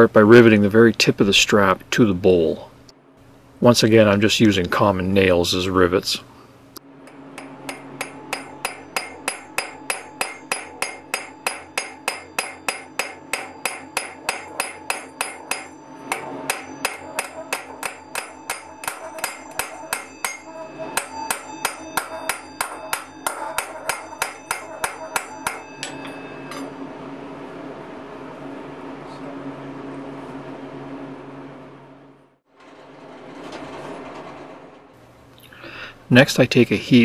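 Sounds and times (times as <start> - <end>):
hammer blows on metal ringing: 7.1 - 26.8.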